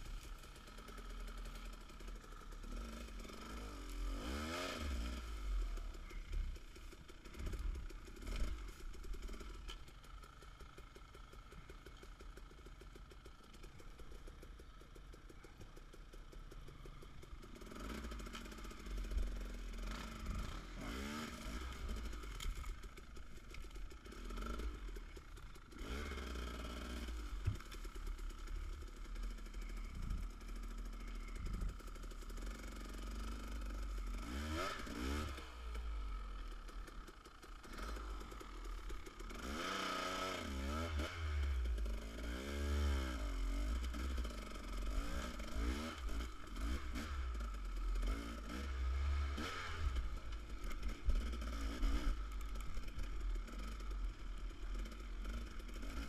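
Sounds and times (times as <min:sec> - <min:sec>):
dirt bike engine revving: 0:02.6 - 0:05.6, 0:17.6 - 0:22.8, 0:24.0 - 0:25.0, 0:25.6 - 0:27.8, 0:28.4 - 0:36.0, 0:39.2 - 0:54.0.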